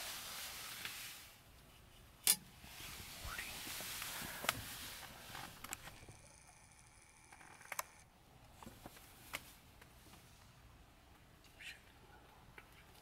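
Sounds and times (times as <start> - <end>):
light hiss: 0.0 - 5.9.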